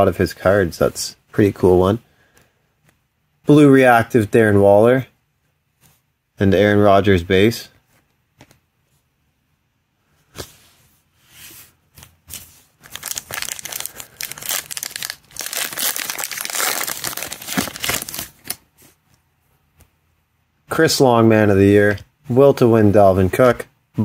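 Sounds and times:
plastic wrapper crinkling and tearing: 0:12.8 - 0:18.6.

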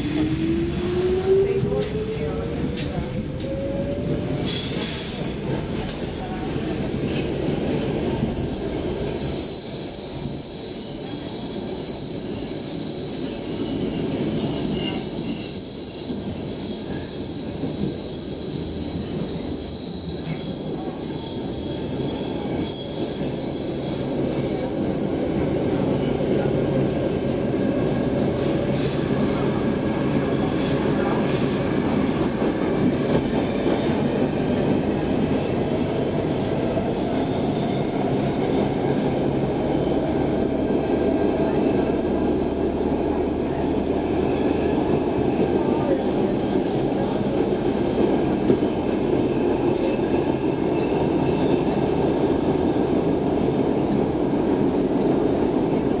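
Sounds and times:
subway wheels rumbling on rail: 0:00.0 - 0:56.0
high wheel squeal: 0:08.1 - 0:25.4.

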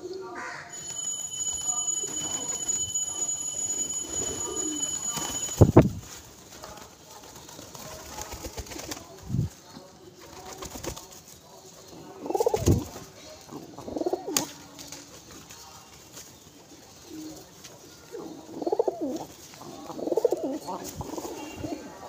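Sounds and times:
pigeons cooing: 0:12.0 - 0:12.9, 0:13.5 - 0:14.5, 0:16.8 - 0:22.0.

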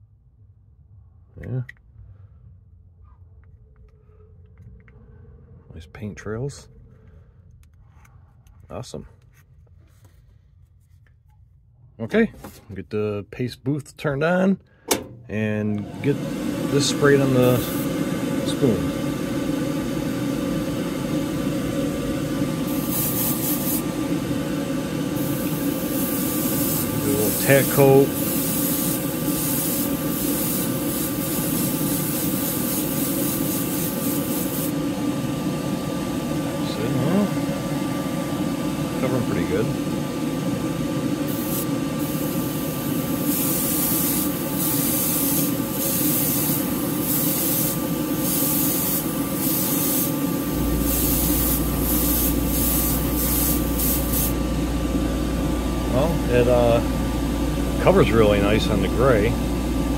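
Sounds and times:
exhaust fan whirring: 0:00.0 - 0:59.9
airbrush spraying hissing bursts: 0:17.0 - 0:18.0, 0:22.6 - 0:24.1, 0:25.1 - 0:34.8, 0:41.3 - 0:54.4.

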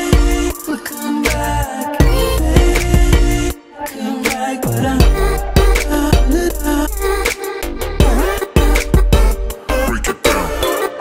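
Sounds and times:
pop song with drum beat: 0:00.0 - 0:11.0.

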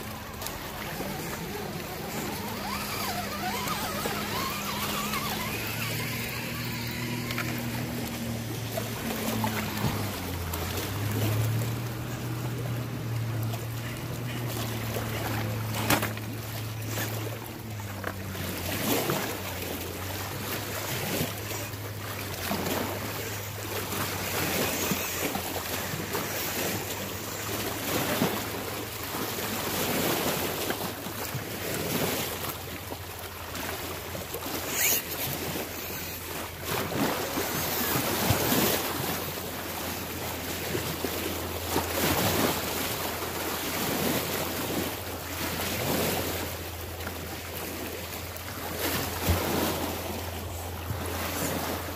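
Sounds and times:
steady low hum: 0:00.0 - 0:17.7.

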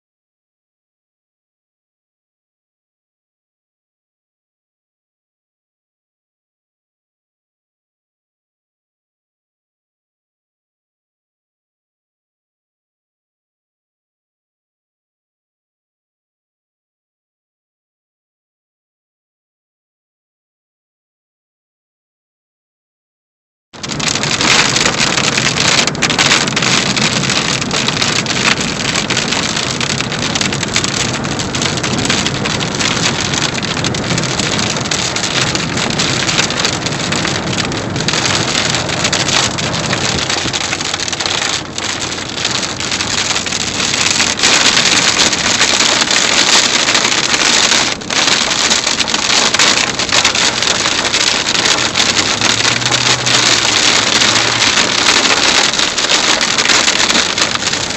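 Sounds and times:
heavy rain on vehicle: 0:23.8 - 0:57.9
road noise: 0:23.8 - 0:57.9
wind hitting vehicle: 0:23.8 - 0:57.9.

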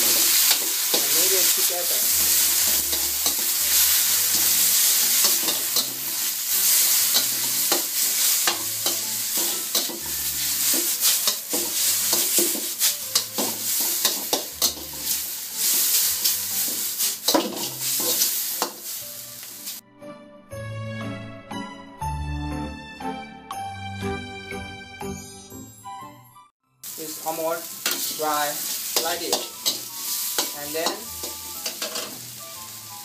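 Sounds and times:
noodles sizzling in a wok: 0:00.0 - 0:19.8, 0:26.8 - 0:33.0
spatula scraping a metal pan: 0:02.3 - 0:18.8.

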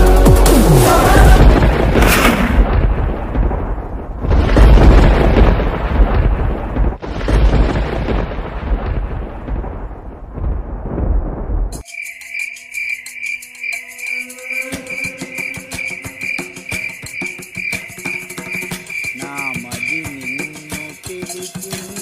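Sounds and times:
thunder crashes: 0:00.9 - 0:11.8.

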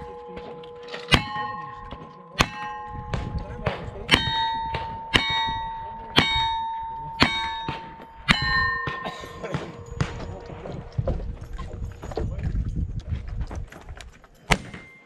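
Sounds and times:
steel target ringing: 0:00.0 - 0:11.1.

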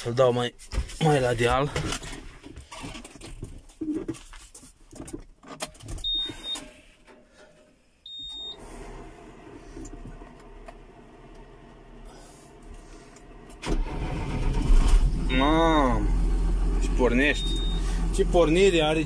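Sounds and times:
short high dashboard beeps: 0:06.0 - 0:06.7, 0:08.1 - 0:08.6, 0:17.3 - 0:18.0.

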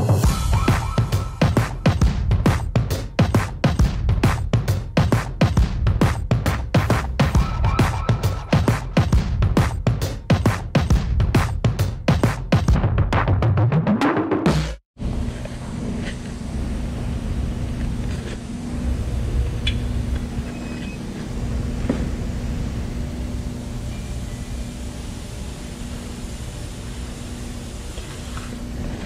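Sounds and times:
laundry machinery humming: 0:15.0 - 0:29.0.

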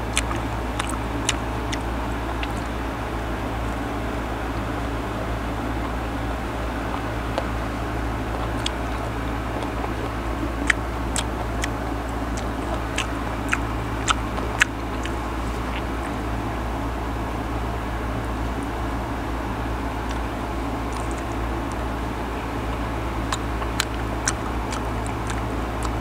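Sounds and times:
mouth clicks: 0:00.0 - 0:02.8, 0:06.9 - 0:16.2, 0:20.9 - 0:21.9, 0:22.6 - 0:26.0
crisp chewing crunches: 0:00.0 - 0:03.9, 0:05.4 - 0:16.3, 0:20.0 - 0:26.0
low background hum: 0:00.0 - 0:26.0.

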